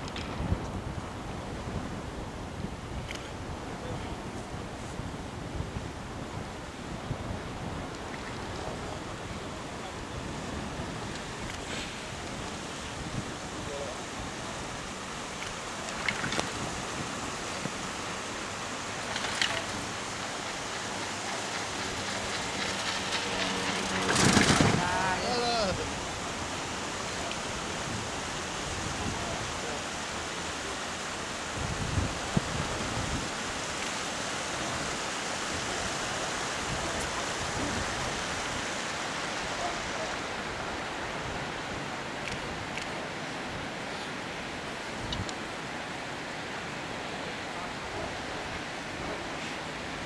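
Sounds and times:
wind hissing on microphone: 0.0s - 50.0s
chairlift rattle: 8.0s - 31.2s
wind rushing: 19.7s - 29.7s.

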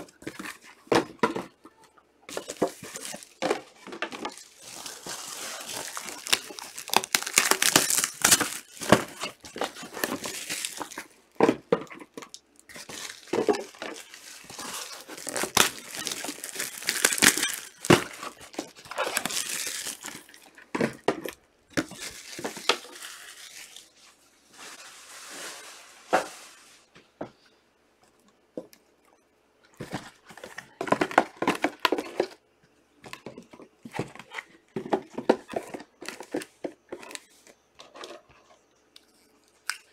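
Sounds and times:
wrappers tearing and crinkling: 2.3s - 11.2s, 12.6s - 20.5s, 21.8s - 24.0s.

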